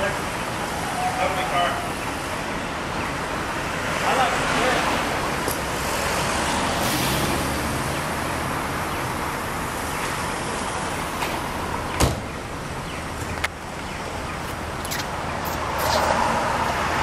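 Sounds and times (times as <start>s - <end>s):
street traffic noise: 0.0s - 17.0s
car door shutting: 12.0s - 12.4s.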